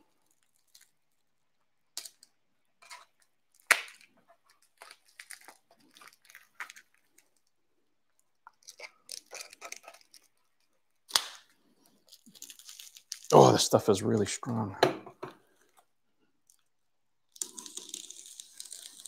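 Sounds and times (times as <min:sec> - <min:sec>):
plastic wrap crinkling: 0:03.5 - 0:13.8, 0:17.3 - 0:19.0
plastic wrap snapping: 0:11.1 - 0:13.4.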